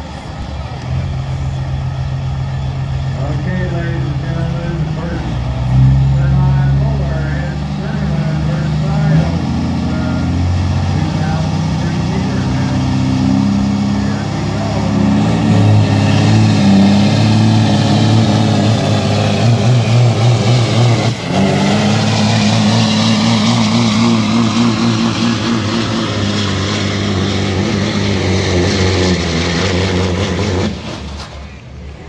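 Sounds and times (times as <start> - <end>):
truck diesel engine at full throttle: 0.0 - 32.0.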